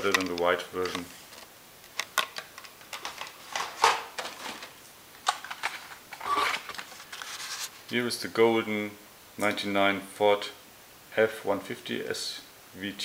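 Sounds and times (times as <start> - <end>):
plastic blister packs clicking: 0.0 - 4.4.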